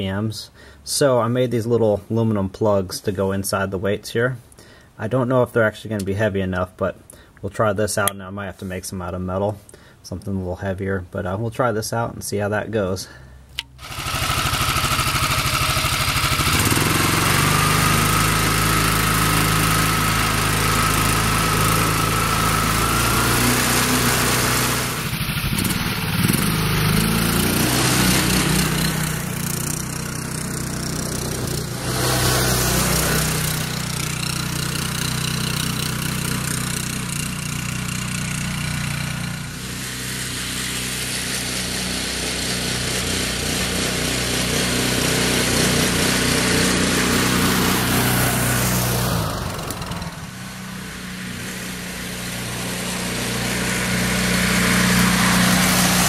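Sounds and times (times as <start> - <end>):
small single-cylinder engine running: 13.7 - 56.0.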